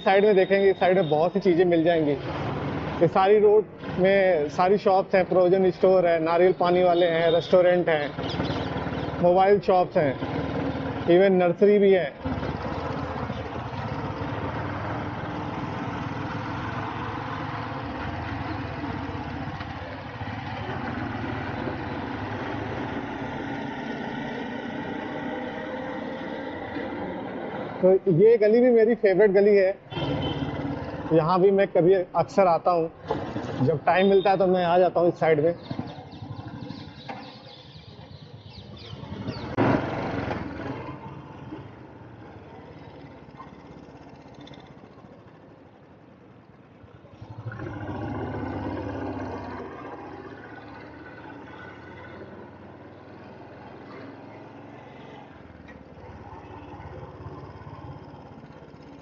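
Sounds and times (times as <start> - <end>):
motorcycle engine running: 12.2 - 24.2, 35.6 - 59.0.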